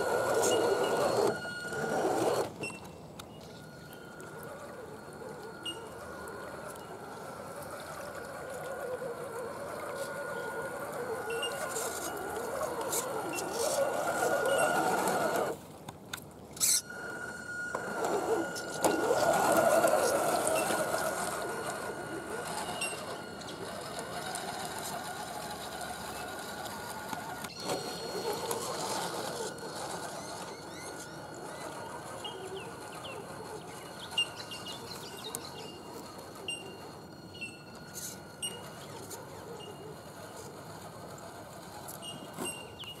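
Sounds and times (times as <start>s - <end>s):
toy truck electric motor whining: 0.0s - 2.9s, 3.6s - 15.6s, 16.6s - 43.0s
bird chirps: 30.2s - 39.8s.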